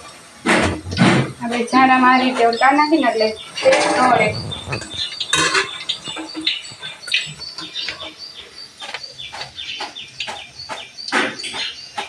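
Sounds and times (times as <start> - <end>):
bird chirping: 2.1 - 12.0.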